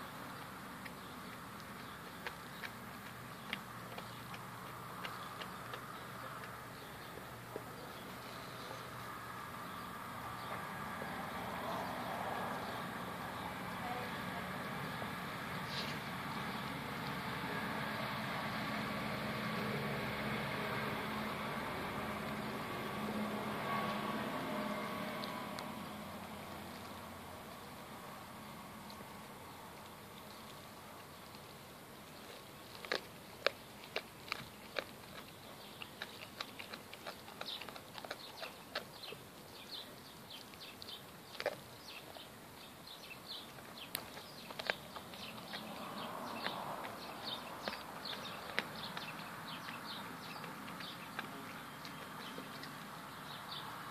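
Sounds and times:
dog chewing meat and bone: 0:00.0 - 0:08.2, 0:20.6 - 0:53.9.

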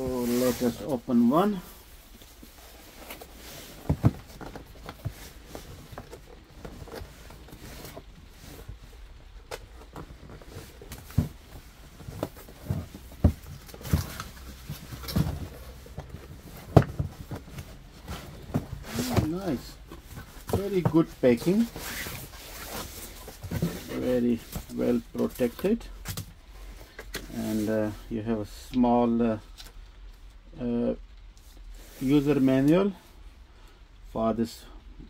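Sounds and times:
cardboard box handled: 0:02.6 - 0:26.2.

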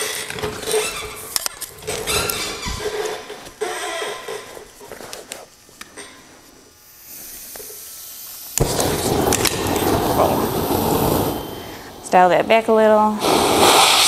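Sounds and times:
gas hissing: 0:00.0 - 0:14.0
flame rushing: 0:00.5 - 0:04.8, 0:06.9 - 0:14.0
torch igniter clicks: 0:08.4 - 0:11.4
torch igniting with a pop: 0:08.5 - 0:12.2, 0:13.2 - 0:14.0.

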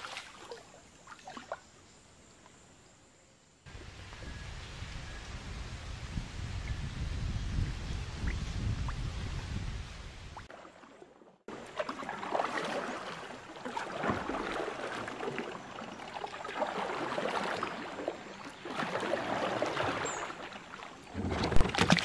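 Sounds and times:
kayak paddle dipping: 0:00.0 - 0:01.7, 0:10.4 - 0:22.0
river water splashing: 0:00.0 - 0:01.8, 0:10.4 - 0:22.0.

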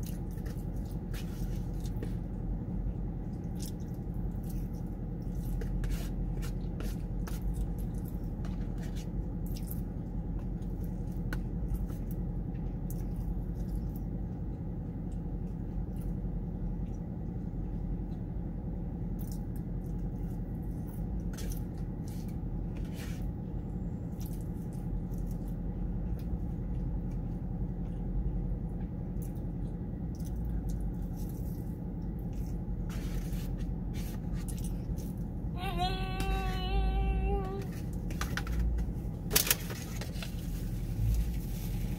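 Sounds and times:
person chewing: 0:00.0 - 0:02.5, 0:03.2 - 0:14.1
steady low hum: 0:00.0 - 0:41.9.

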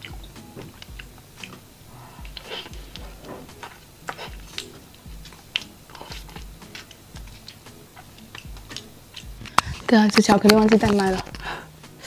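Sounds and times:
person chewing soft cake: 0:00.0 - 0:09.9
soft low pulses: 0:00.0 - 0:09.9
wet mouth clicks: 0:02.2 - 0:09.9.

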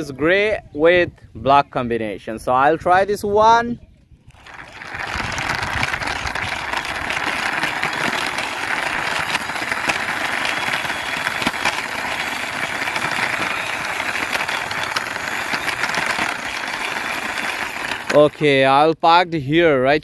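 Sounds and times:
toy wheels rolling on concrete: 0:04.3 - 0:18.6.

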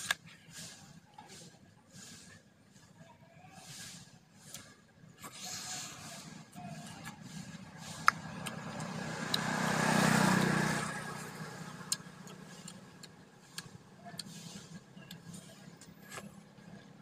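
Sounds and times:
vehicle passing by: 0:05.6 - 0:17.0.

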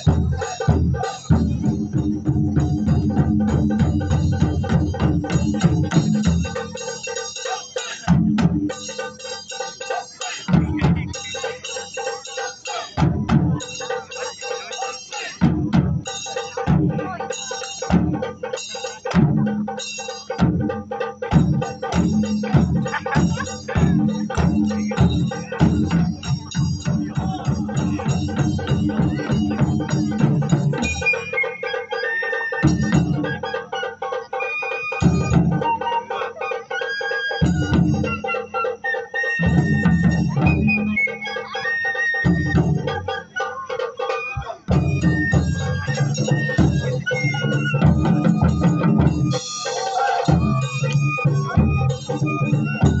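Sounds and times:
taiko drumming: 0:00.0 - 0:53.0
ringing higher tones: 0:21.2 - 0:53.0
high flute melody: 0:30.7 - 0:53.0.

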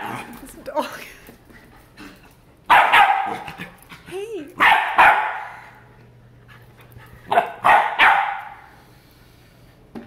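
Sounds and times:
puppy barking: 0:02.7 - 0:03.7, 0:04.6 - 0:05.6, 0:07.3 - 0:08.7.

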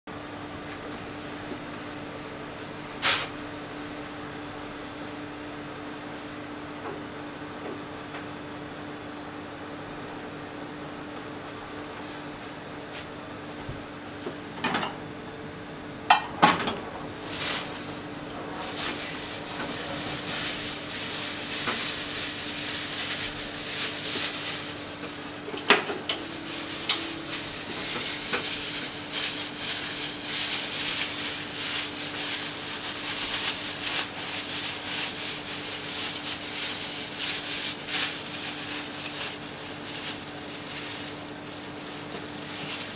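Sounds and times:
steady low hum: 0:09.4 - 0:42.9
oil sizzling in frying pan: 0:17.2 - 0:42.9.

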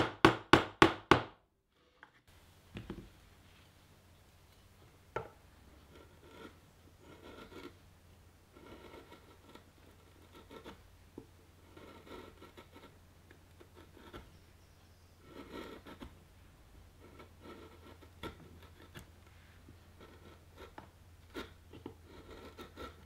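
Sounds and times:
chisel scraping wood: 0:05.8 - 0:07.8, 0:08.5 - 0:10.9, 0:11.5 - 0:16.2, 0:16.9 - 0:19.1, 0:19.7 - 0:23.0.

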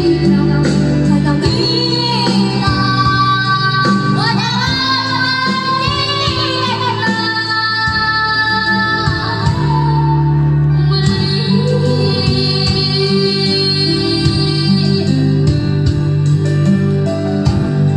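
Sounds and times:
girl singing into microphone: 0:00.0 - 0:16.8
karaoke backing track: 0:00.0 - 0:17.9.

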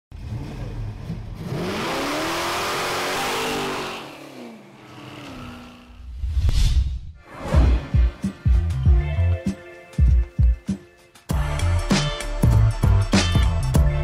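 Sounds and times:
car engine revving: 0:00.2 - 0:06.1.

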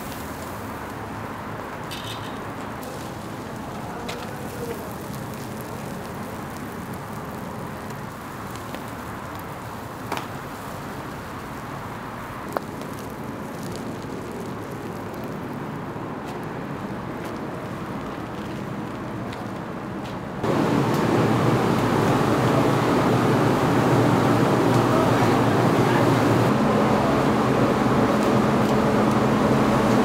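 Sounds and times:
grill kitchen rushing noise: 0:20.4 - 0:30.0.

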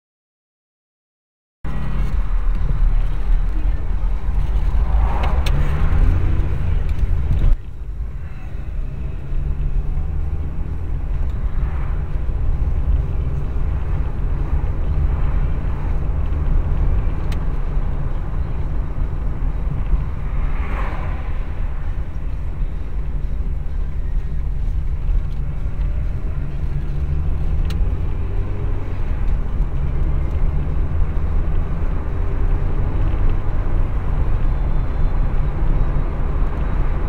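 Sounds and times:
car engine and tyre rumble: 0:01.6 - 0:37.0.

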